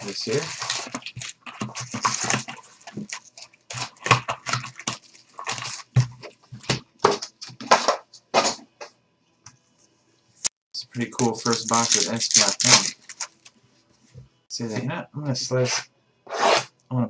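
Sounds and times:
foil packs crinkling: 0:00.0 - 0:06.2, 0:11.2 - 0:13.5.

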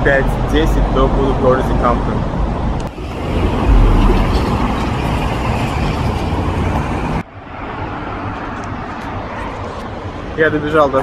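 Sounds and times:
traffic hum: 0:00.0 - 0:11.0
cars passing close by: 0:02.9 - 0:10.4.

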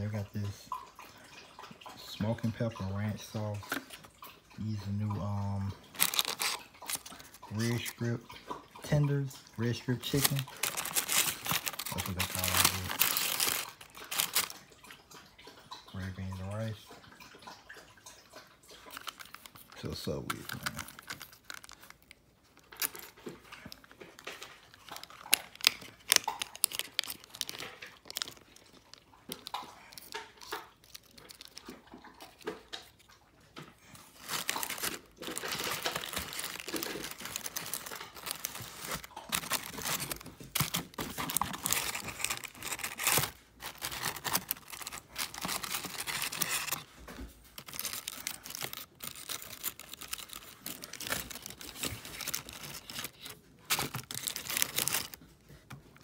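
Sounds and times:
plastic bag crinkling and tearing: 0:05.8 - 0:08.1, 0:08.9 - 0:14.7, 0:18.9 - 0:31.8, 0:33.9 - 0:56.0.

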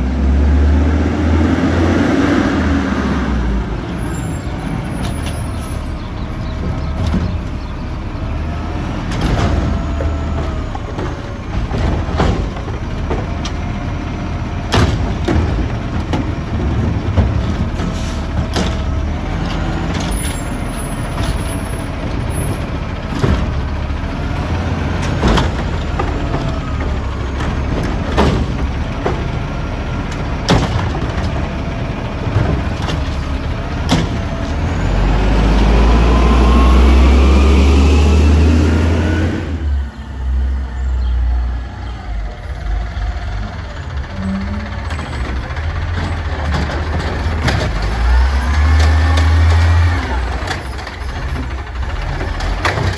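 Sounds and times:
garbage truck engine: 0:00.0 - 0:52.9
cart banging: 0:03.9 - 0:35.8.

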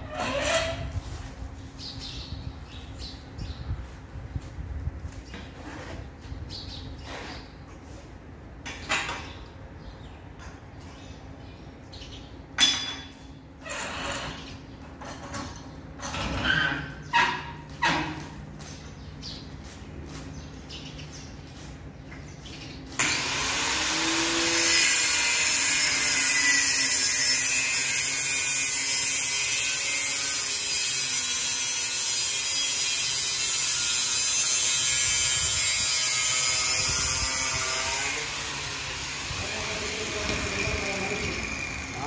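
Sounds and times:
metal cut-off saw cutting pipe: 0:23.0 - 0:42.0.

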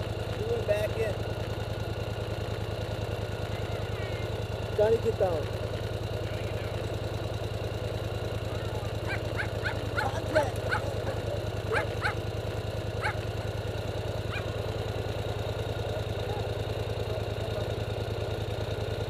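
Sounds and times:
atv engine idling: 0:00.0 - 0:19.0
dog yipping: 0:09.0 - 0:12.2, 0:13.0 - 0:13.2, 0:14.3 - 0:14.5.

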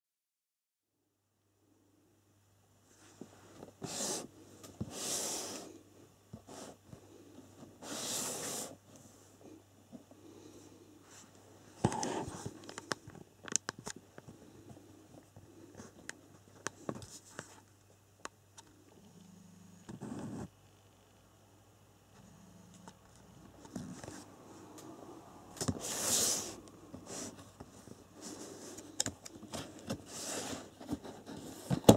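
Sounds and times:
faint low hum: 0:00.9 - 0:31.9
small clicks and scrapes: 0:11.3 - 0:17.8.

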